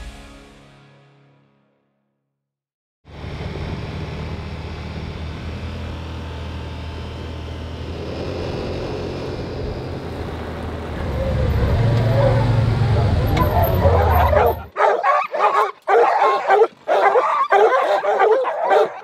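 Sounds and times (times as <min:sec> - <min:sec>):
vehicle engine running: 0:03.1 - 0:14.7
road noise: 0:03.1 - 0:19.0.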